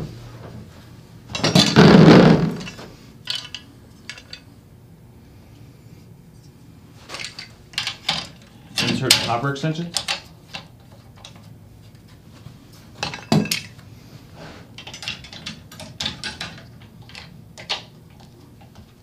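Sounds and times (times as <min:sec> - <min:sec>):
metal clanks and clicks: 0:07.2 - 0:11.4, 0:14.8 - 0:18.9.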